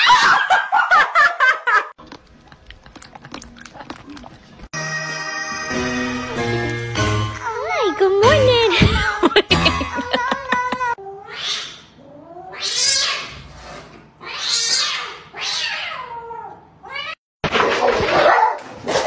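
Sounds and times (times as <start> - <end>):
cats hissing and yowling: 8.9 - 17.2.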